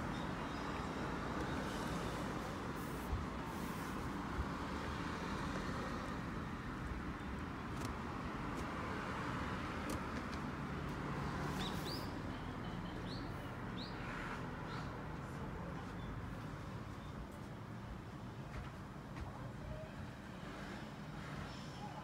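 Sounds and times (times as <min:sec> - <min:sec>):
distant traffic: 0:00.0 - 0:22.0.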